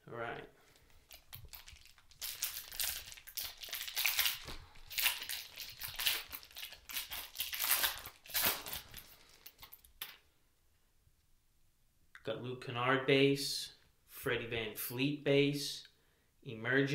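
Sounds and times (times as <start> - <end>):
foil pack tearing open: 1.1 - 9.9
foil wrapper crinkling: 1.1 - 10.2.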